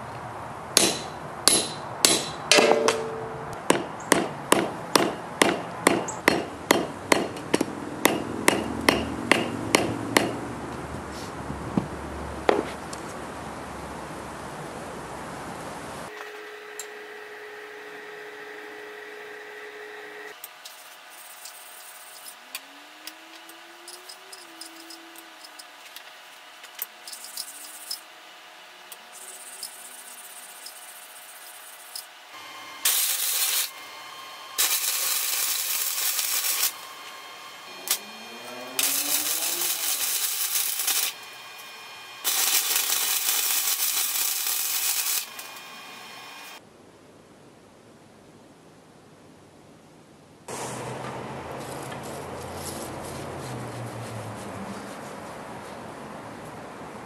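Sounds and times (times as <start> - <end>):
arc welder crackling: 0.8 - 10.9, 16.1 - 46.6.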